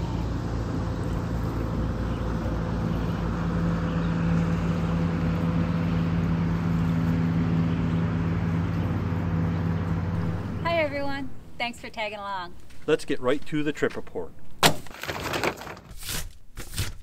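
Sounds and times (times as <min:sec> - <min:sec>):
distant motorboat engine hum: 0:00.0 - 0:12.7.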